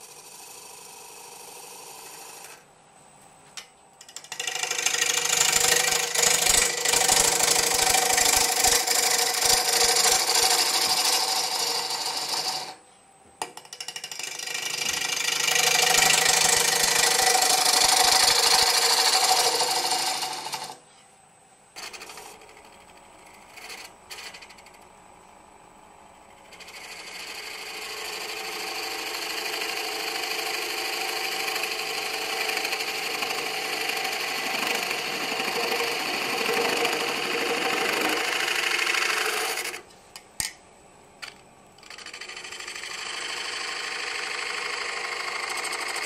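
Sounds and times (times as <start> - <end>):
wood lathe running: 0.0 - 2.6, 4.0 - 12.8, 13.6 - 20.8, 21.8 - 24.8, 26.4 - 39.8, 41.8 - 46.0
gouge cutting wood on lathe: 0.1 - 2.5, 4.2 - 12.8, 13.8 - 20.8, 26.5 - 39.8, 41.8 - 46.0.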